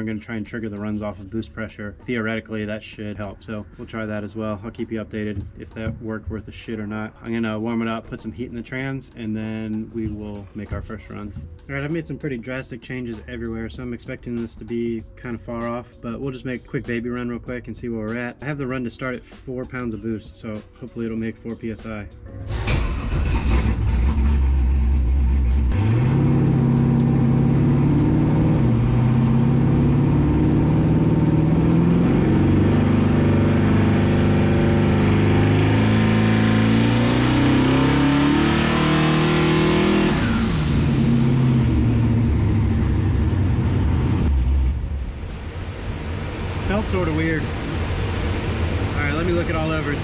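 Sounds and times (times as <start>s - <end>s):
car engine revving on dyno: 23.3s - 44.8s.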